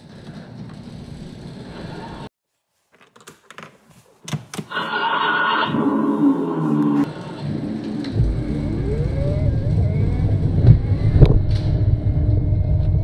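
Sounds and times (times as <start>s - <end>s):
loud electronic pitched sound: 4.7s - 13.0s.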